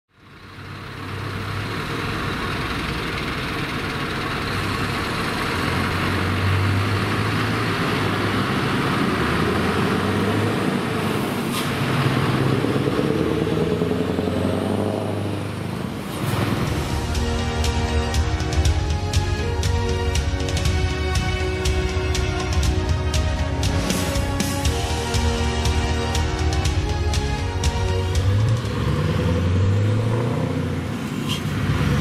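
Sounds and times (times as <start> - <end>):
truck engine accelerating past: 0.1 - 32.0.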